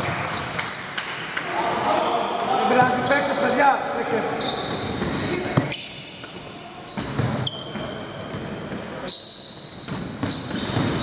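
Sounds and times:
players' voices in a hall: 0.0 - 11.0
shoes squeaking on floor: 0.3 - 11.0
basketball bouncing: 7.0 - 7.9, 9.9 - 11.0.

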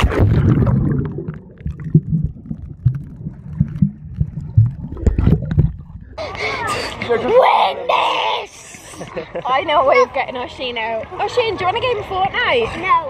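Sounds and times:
underwater knocks: 0.0 - 6.0
bubbling: 0.0 - 7.0
underwater water churning: 0.0 - 9.1.

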